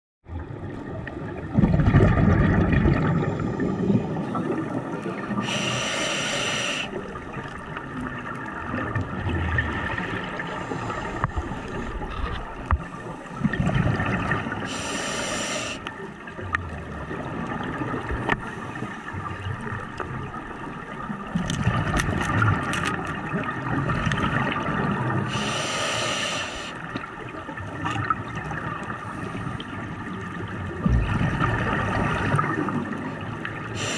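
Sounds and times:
exhaled air bubbling: 0.3s - 33.9s
regulator hissing inhalations: 5.4s - 7.0s, 14.7s - 15.9s, 25.3s - 26.8s.

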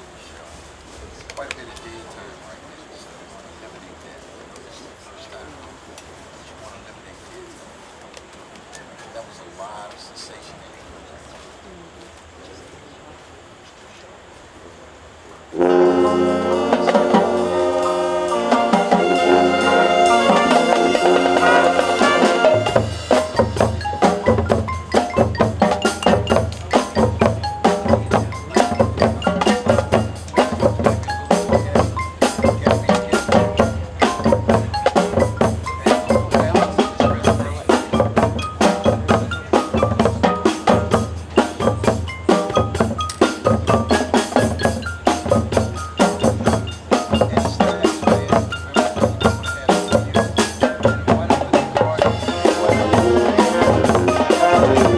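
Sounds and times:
brass chord: 15.5s - 24.2s, 52.0s - 54.9s
mallet percussion and drums: 16.0s - 54.9s.

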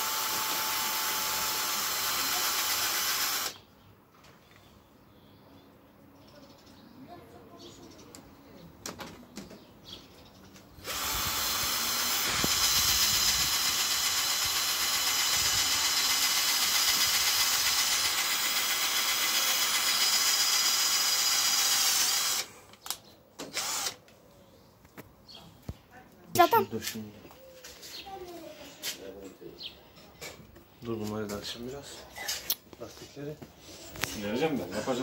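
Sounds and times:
cordless drill running: 0.0s - 3.6s, 10.8s - 22.7s, 23.4s - 24.0s.

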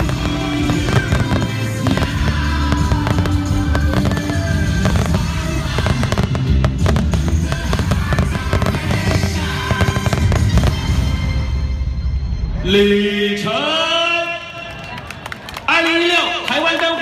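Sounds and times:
fireworks bangs and crackles: 0.0s - 11.6s
loud music: 0.0s - 14.0s.

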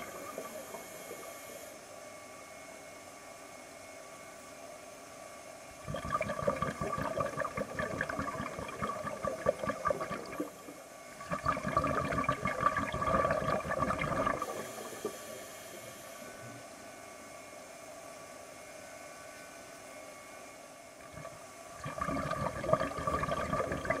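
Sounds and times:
regulator bubbles underwater: 0.0s - 1.6s, 5.8s - 16.1s, 21.0s - 24.0s
faint steady hiss: 6.0s - 16.9s.

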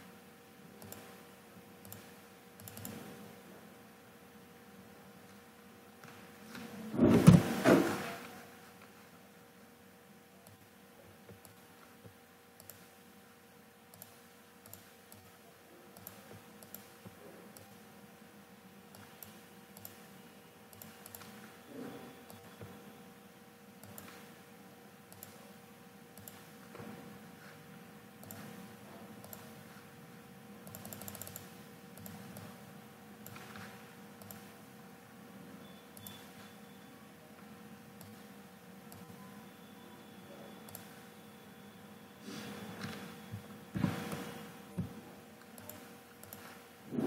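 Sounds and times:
faint steady hum: 0.0s - 47.0s
computer mouse clicking: 0.8s - 1.2s, 1.8s - 3.1s, 11.3s - 13.0s, 13.9s - 17.8s, 18.9s - 20.1s, 20.7s - 21.5s, 22.3s - 22.7s, 23.8s - 24.3s, 25.1s - 25.5s, 26.1s - 26.6s, 28.2s - 28.6s, 29.2s - 29.8s, 30.6s - 32.6s, 33.2s - 34.6s, 38.0s - 38.3s, 38.9s - 39.2s, 40.7s - 41.0s, 44.1s - 46.6s.

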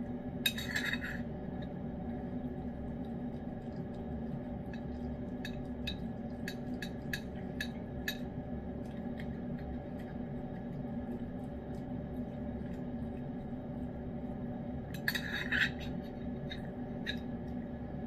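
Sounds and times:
steady background hum: 0.0s - 18.0s
cat licking food: 2.8s - 14.5s.

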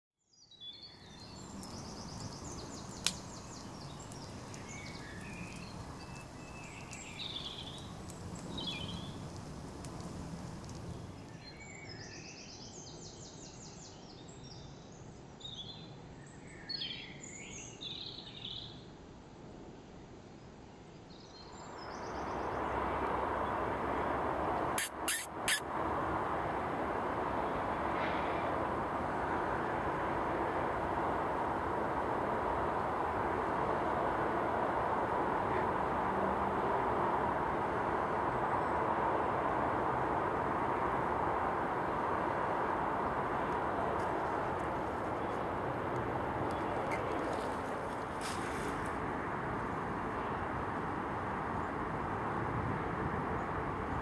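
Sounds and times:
loud rushing noise: 22.1s - 46.9s.

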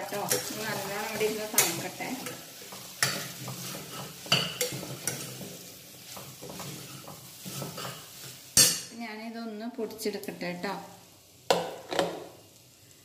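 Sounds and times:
meat sizzling: 0.0s - 13.0s
ladle scraping a pot: 0.2s - 8.8s.

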